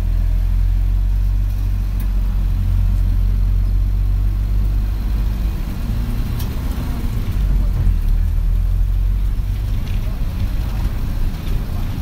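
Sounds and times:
bus engine and road rumble: 0.0 - 12.0.

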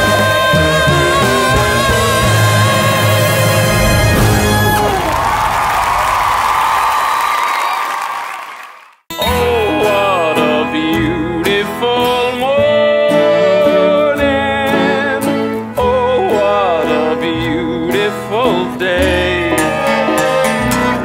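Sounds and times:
acoustic guitar: 0.0 - 5.2, 9.1 - 21.0
person singing wavering melody: 9.1 - 20.8.

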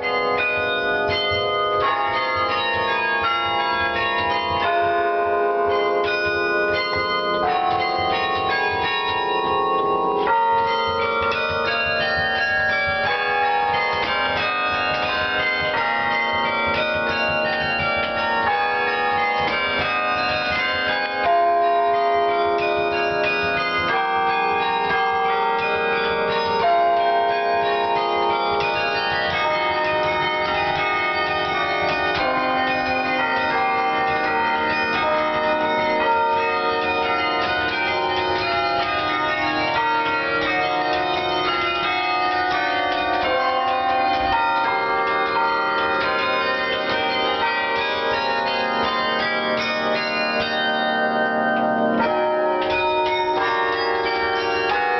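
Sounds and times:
carillon bells playing a tune: 0.0 - 54.9.

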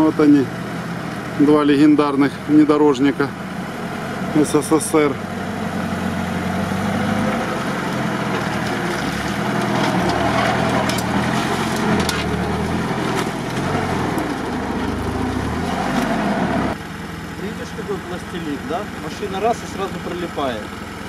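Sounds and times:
off-road vehicle engine revving: 0.0 - 21.0
tyres churning mud: 1.1 - 16.8.

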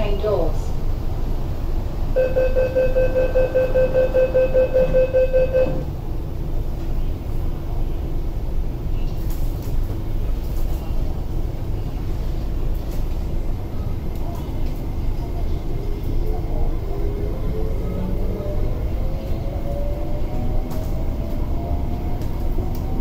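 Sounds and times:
steady low hum: 0.0 - 23.0
train rumble: 0.0 - 23.0
rapid door warning beeps: 2.2 - 5.9.

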